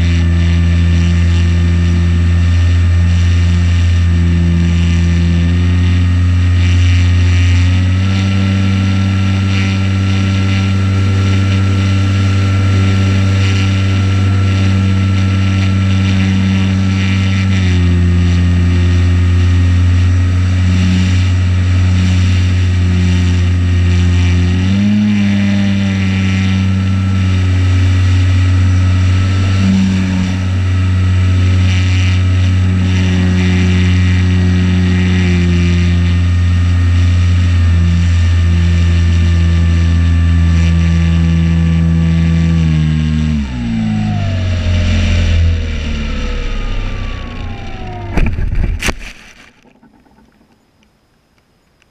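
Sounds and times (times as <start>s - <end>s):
electric motor and propeller whine: 0.0s - 50.9s
wind rush: 43.5s - 49.2s.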